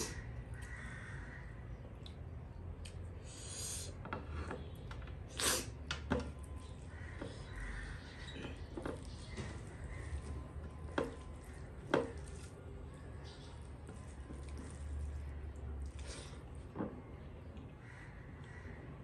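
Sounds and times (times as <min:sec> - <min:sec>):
fingers mixing food on steel plate: 0:06.6 - 0:16.0.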